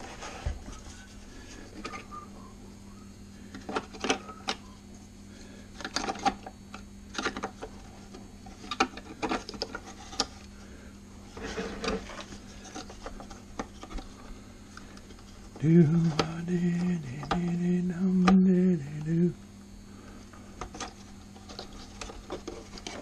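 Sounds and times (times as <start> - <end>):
plastic parts clicking and scraping: 5.8 - 7.8, 8.5 - 10.5, 11.3 - 14.2, 20.6 - 23.0.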